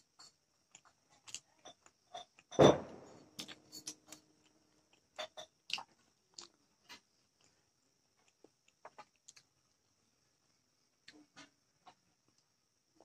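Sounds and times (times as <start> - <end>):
knock on metal plate: 2.6 - 3.1
mouth clicks and smacks eating: 4.9 - 7.5, 8.2 - 9.6.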